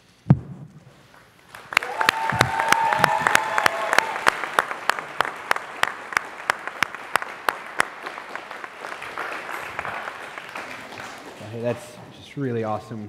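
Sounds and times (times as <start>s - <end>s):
sharp hand claps: 1.5s - 11.5s
crowd applauding: 1.5s - 11.9s
crowd cheering: 1.6s - 11.9s.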